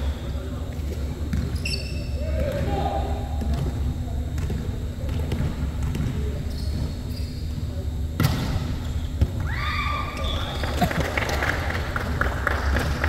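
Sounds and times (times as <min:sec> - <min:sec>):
volleyball being hit: 0:08.2 - 0:09.5.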